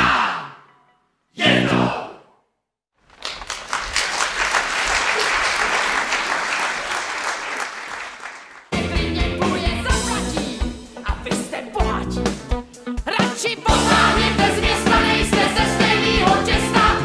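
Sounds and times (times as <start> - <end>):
audience applauding: 3.0 - 8.8.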